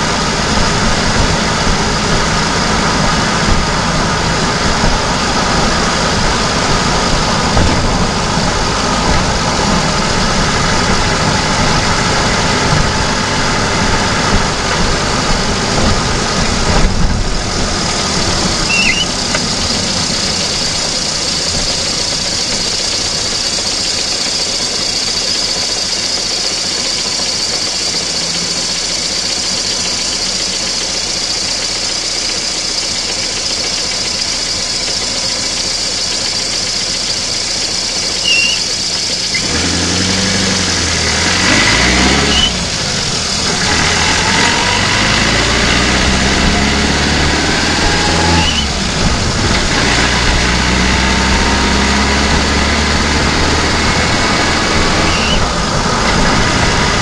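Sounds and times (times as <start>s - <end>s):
car engine running: 0.0s - 57.0s
road noise: 0.0s - 57.0s.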